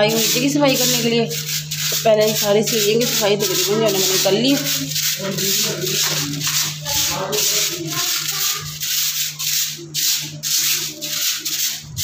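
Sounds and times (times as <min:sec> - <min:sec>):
broom sweeping concrete floor: 0:00.0 - 0:12.0
steady low hum: 0:00.0 - 0:12.0.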